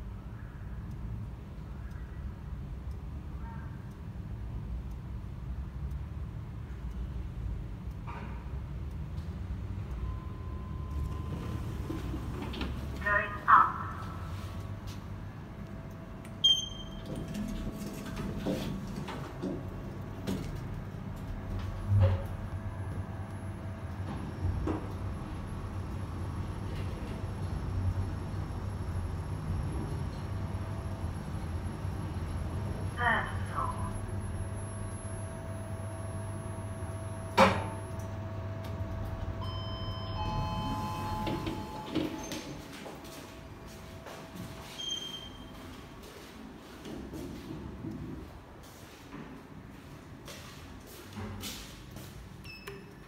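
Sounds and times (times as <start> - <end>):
lift car low hum: 0.0 - 50.2
lift doors sliding open: 10.9 - 13.1, 39.0 - 42.9
sharp electronic beep: 16.4 - 17.1, 39.4 - 42.4.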